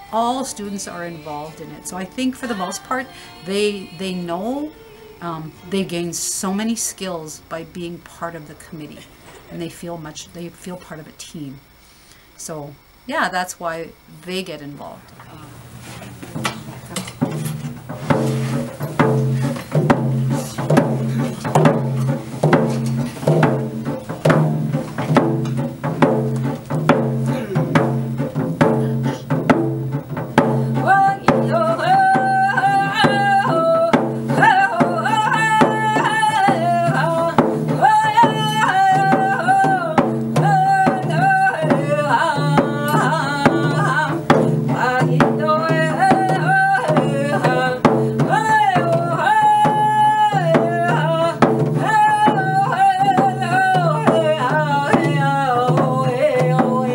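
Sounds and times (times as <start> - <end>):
woman singing: 0.0 - 11.7, 30.4 - 56.9
frame drum beating: 16.3 - 56.9.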